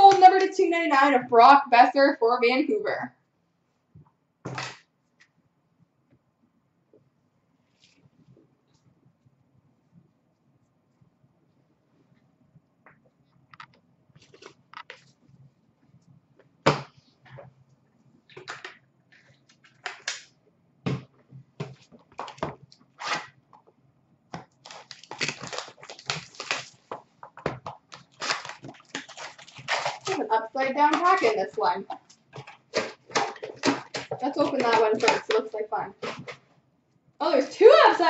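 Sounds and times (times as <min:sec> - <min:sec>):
packaging rustling and crinkling: 0:14.2 - 0:15.2, 0:21.6 - 0:23.4, 0:24.4 - 0:36.4
cards tapping and clicking: 0:32.0 - 0:36.4.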